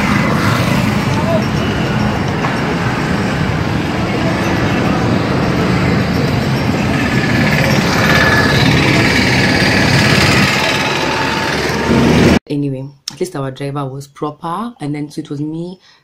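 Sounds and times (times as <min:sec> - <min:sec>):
indistinct voices: 0:00.0 - 0:12.4
motor vehicle traffic: 0:00.0 - 0:12.4.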